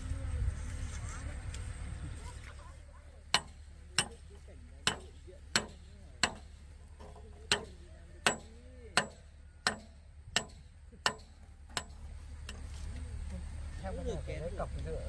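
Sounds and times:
hand tool striking hard surface: 0:03.3 - 0:12.7.

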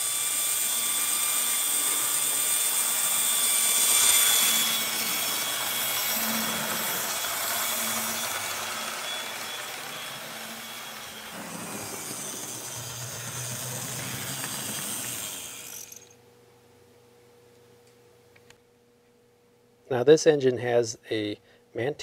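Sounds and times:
model train motor whirring: 0:00.0 - 0:16.2.

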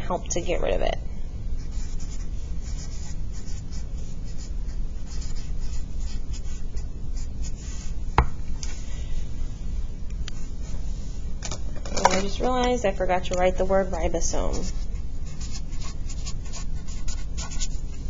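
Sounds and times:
steady low hum: 0:00.0 - 0:18.0
marker scratching on paper: 0:01.6 - 0:08.0, 0:14.3 - 0:17.9.

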